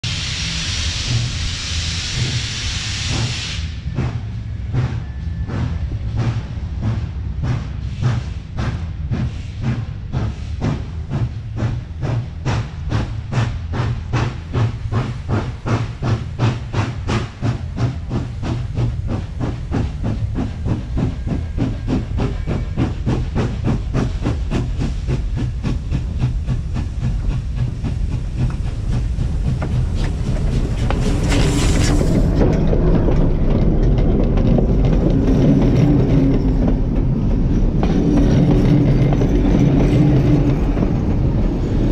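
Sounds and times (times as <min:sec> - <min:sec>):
steam hissing: 0:00.0 - 0:05.6, 0:07.8 - 0:32.3
steam locomotive exhaust chuffs: 0:00.0 - 0:41.9.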